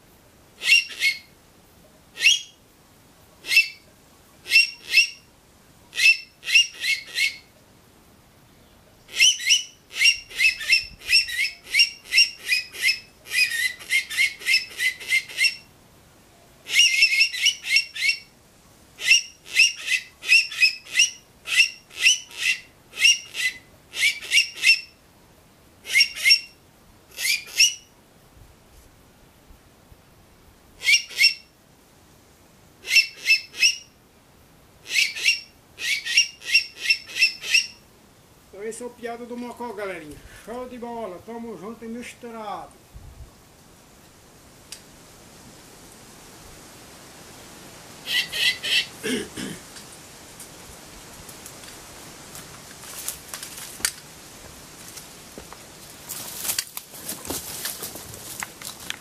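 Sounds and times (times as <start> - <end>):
whistled animal call squeaks: 0.6 - 1.3, 2.2 - 2.6, 3.4 - 3.8, 4.5 - 5.2, 6.0 - 7.5, 9.1 - 15.7, 16.7 - 18.3, 19.0 - 24.9, 25.9 - 27.9, 30.8 - 31.4, 32.8 - 33.9, 34.9 - 37.8, 48.1 - 48.9.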